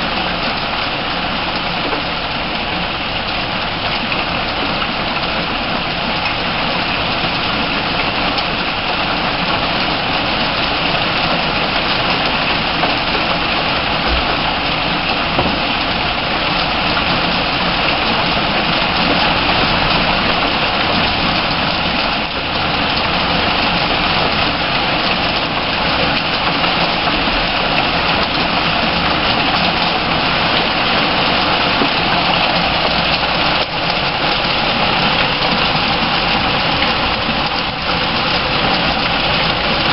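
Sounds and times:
heavy rain pouring: 0:00.0 - 0:39.9.

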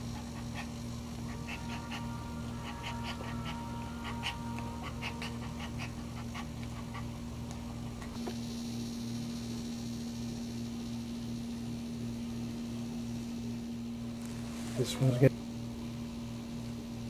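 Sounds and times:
dog panting: 0:00.0 - 0:08.1
faint high whine: 0:00.0 - 0:17.0
steady low hum: 0:00.0 - 0:17.0.

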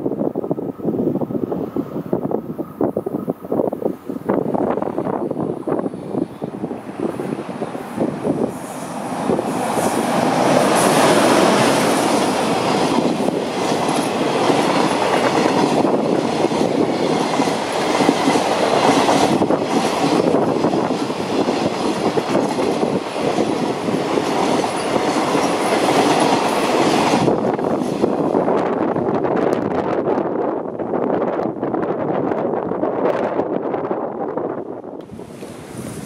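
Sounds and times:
freight train rumbling past: 0:00.0 - 0:36.0
train wheels clattering: 0:08.4 - 0:28.2.

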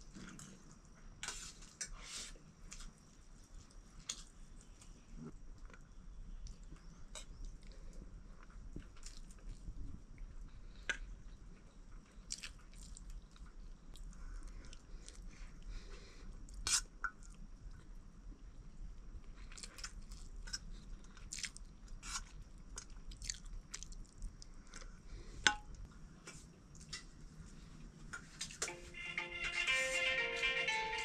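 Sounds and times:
person chewing food: 0:05.6 - 0:09.7, 0:11.6 - 0:18.0, 0:19.2 - 0:25.1.

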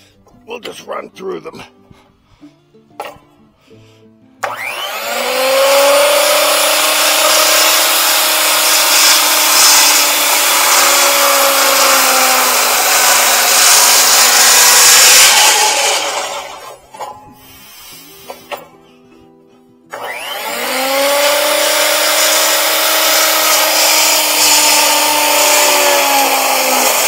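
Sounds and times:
circular saw cutting timber: 0:04.4 - 0:18.8, 0:19.9 - 0:27.0.

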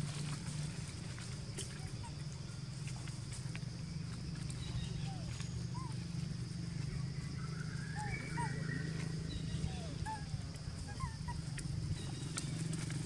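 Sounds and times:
steady low hum: 0:00.0 - 0:13.0
high chirping animal calls: 0:04.6 - 0:12.5.

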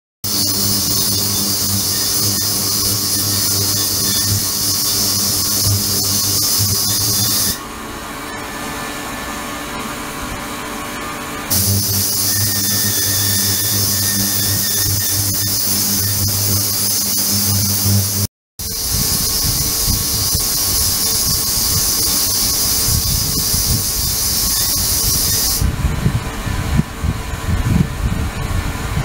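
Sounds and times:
ultrasonic cleaner high hiss: 0:11.5 - 0:25.6.

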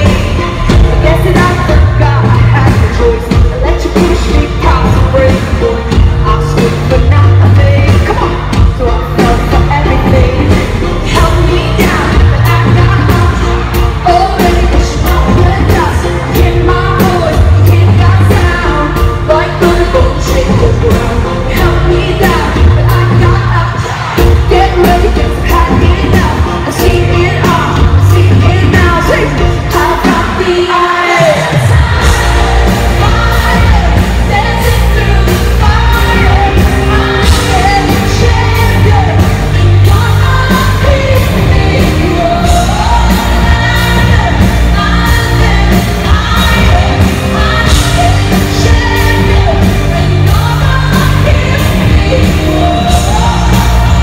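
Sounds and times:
live pop concert music: 0:00.0 - 0:54.0
woman singing: 0:00.0 - 0:54.0.

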